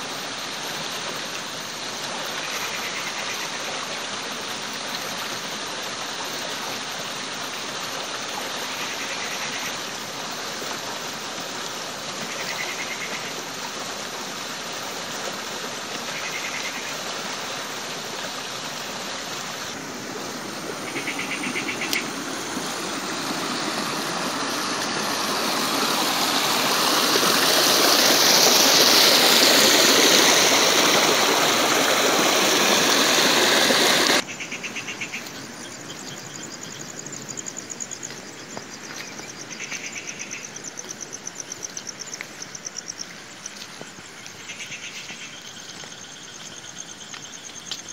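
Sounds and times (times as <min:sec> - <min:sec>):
stream running over stones: 0:00.0 - 0:47.9
insect trills: 0:07.1 - 0:14.1, 0:14.7 - 0:47.9.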